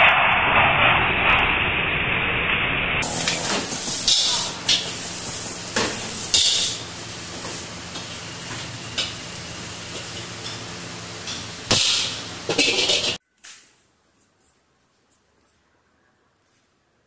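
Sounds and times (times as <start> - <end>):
metal ladle scraping a wok: 3.0 - 13.2
noodles sizzling in a wok: 3.0 - 13.2.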